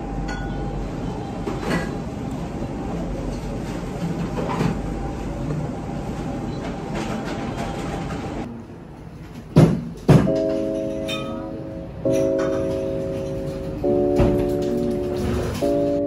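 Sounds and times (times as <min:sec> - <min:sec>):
tableware clinking: 0:00.2 - 0:00.6, 0:10.0 - 0:16.0
sharp knocks: 0:09.5 - 0:10.8
soft music: 0:10.1 - 0:16.0.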